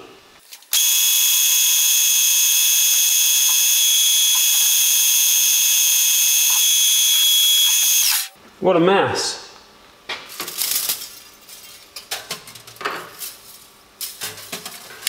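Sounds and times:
metal lathe high-pitched whine: 0.8 - 8.3.

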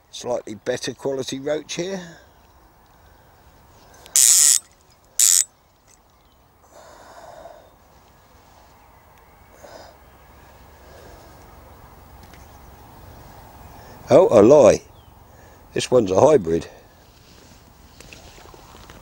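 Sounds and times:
fishing reel ratchet clicking: 4.1 - 4.6, 5.2 - 5.5.

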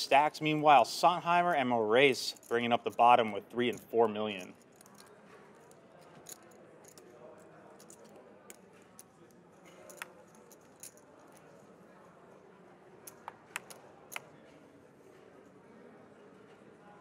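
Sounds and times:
poker chips clicking: 9.7 - 11.0, 13.1 - 14.3.

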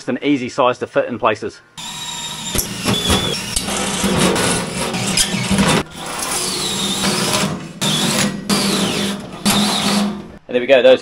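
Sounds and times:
drill cutting with hole saw: 1.8 - 10.4.

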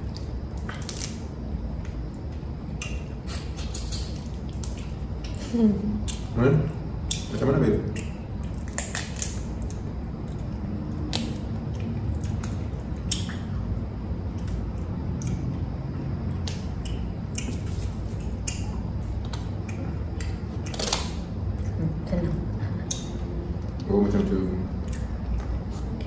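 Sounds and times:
low steady hum: 0.0 - 26.0
shells cracking and snipping: 0.1 - 1.2, 3.6 - 5.3, 7.9 - 10.4, 20.2 - 21.2.

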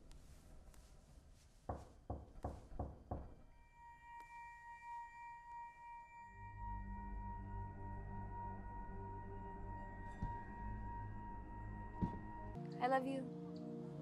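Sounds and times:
high ringing tone: 3.5 - 12.6
low drone: 3.6 - 12.6.

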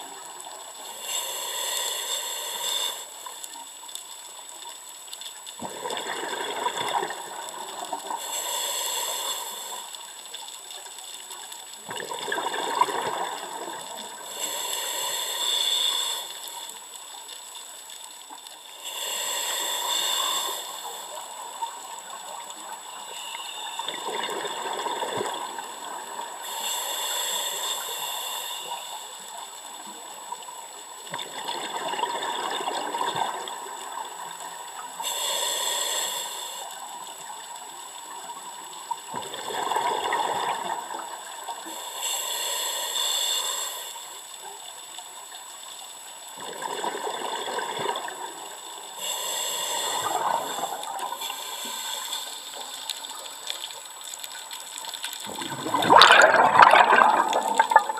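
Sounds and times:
diver breathing through regulator: 0.9 - 3.2, 8.1 - 10.0, 14.3 - 16.7, 18.7 - 21.2, 26.3 - 29.0, 35.0 - 36.7, 41.6 - 44.2, 48.9 - 52.8
exhaled bubbles rushing: 5.6 - 7.9, 11.9 - 13.8, 55.2 - 57.9.

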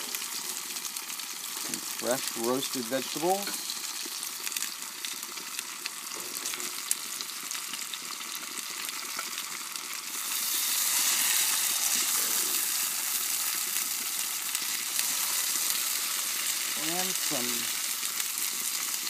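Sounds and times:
food sizzling on grill: 0.0 - 19.0.

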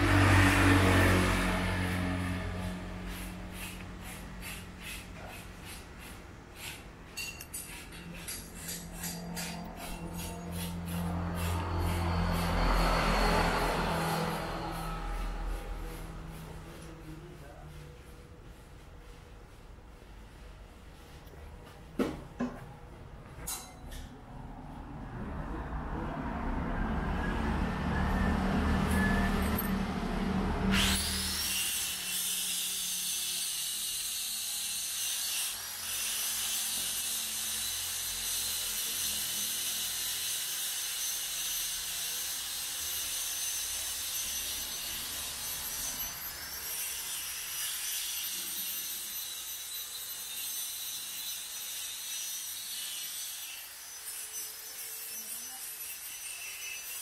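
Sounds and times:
power grinder grinding metal: 7.5 - 16.6, 30.6 - 57.0.

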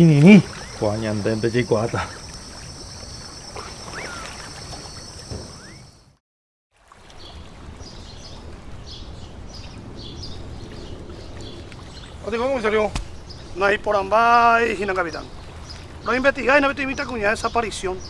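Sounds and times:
insect drone: 0.0 - 6.2
small birds chirping: 0.0 - 6.2, 7.2 - 18.0
short rising whistles: 3.5 - 6.0.

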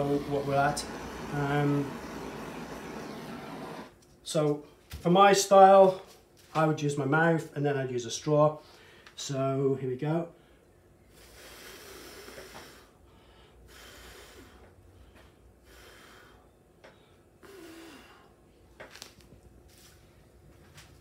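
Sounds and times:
person breathing in: 10.5 - 18.4.

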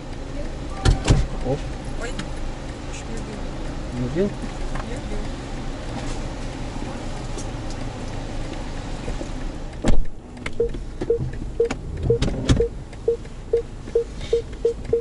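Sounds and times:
car cabin road rumble: 0.0 - 15.0
electronic warning beeps: 10.6 - 15.0.

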